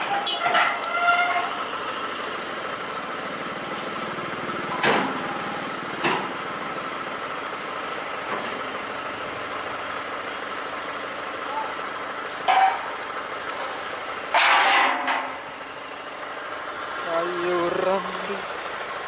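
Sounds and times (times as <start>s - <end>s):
metal ramps clanking: 0.0s - 1.6s, 4.6s - 6.4s, 12.3s - 13.0s, 14.3s - 15.5s
engine idling: 0.0s - 19.0s.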